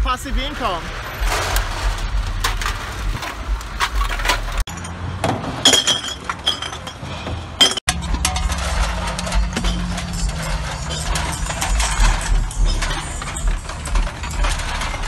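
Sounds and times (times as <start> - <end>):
aluminium cans clattering: 1.2 - 4.9, 7.6 - 15.0.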